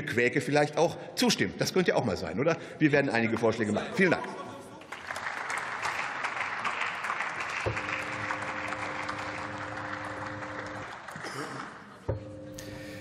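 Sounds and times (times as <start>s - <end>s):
people clapping: 4.0s - 12.1s.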